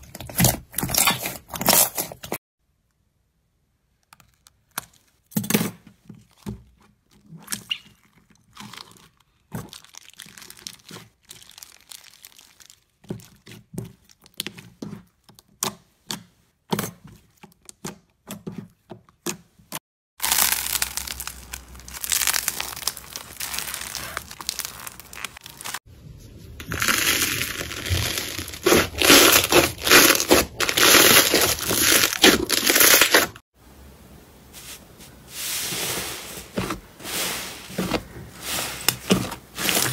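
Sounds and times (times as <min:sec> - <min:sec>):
plastic bag crinkling: 0:08.8 - 0:13.0, 0:20.2 - 0:25.8, 0:26.6 - 0:33.4, 0:36.6 - 0:39.9
slime crackling when squeezed: 0:20.2 - 0:25.8, 0:26.7 - 0:33.3.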